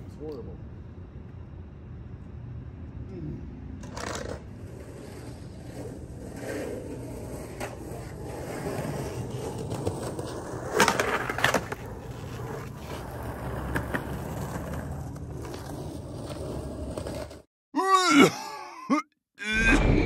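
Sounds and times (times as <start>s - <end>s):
skateboard wheels rolling on asphalt: 3.8s - 17.5s.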